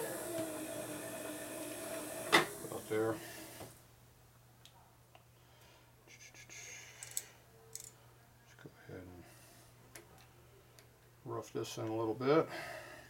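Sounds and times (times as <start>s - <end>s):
small metal clicks: 7.0s - 8.0s.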